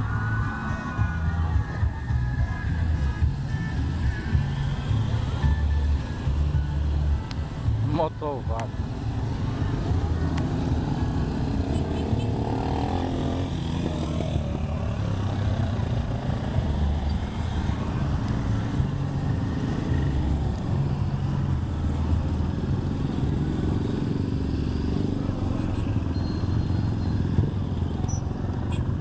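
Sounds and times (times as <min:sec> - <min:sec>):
small motorcycles riding past: 0:09.4 - 0:20.5.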